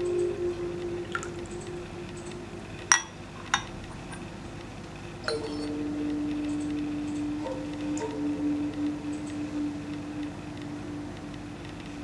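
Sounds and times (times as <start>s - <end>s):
background music drone: 0.0s - 12.0s
teaware clinking: 2.9s - 4.3s.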